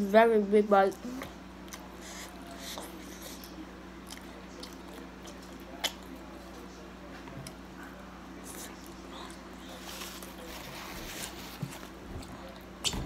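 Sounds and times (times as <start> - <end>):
steady low hum: 0.0 - 13.0
person chewing food: 1.2 - 6.2.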